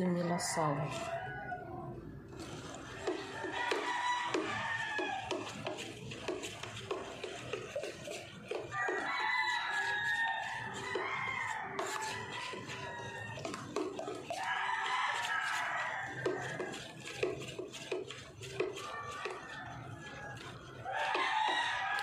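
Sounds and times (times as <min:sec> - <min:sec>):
rooster crowing: 0:00.2 - 0:02.0, 0:03.0 - 0:05.6, 0:08.6 - 0:17.1, 0:18.8 - 0:22.0.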